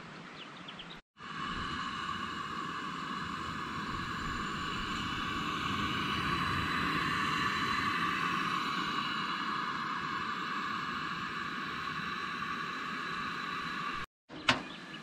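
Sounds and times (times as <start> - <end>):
gas stove burner hissing: 1.2 - 15.0.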